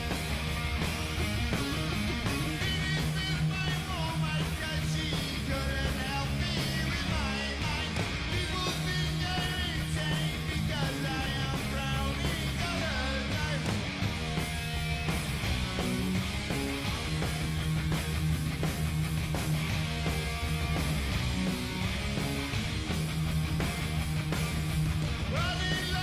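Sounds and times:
heavy metal band playing: 0:00.0 - 0:26.0
man singing: 0:02.4 - 0:13.7, 0:25.3 - 0:26.0.

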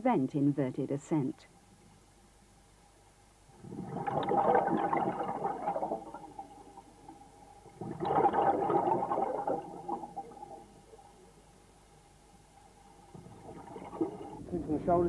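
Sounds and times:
faint steady hum: 0:00.0 - 0:15.0
air bubbles underwater: 0:03.5 - 0:11.4, 0:12.9 - 0:14.7.

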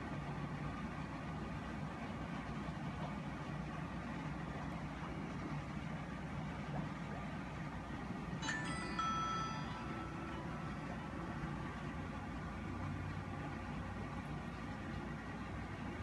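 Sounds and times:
aquarium air pump humming: 0:00.0 - 0:16.0
bell-like chime: 0:08.4 - 0:11.9.

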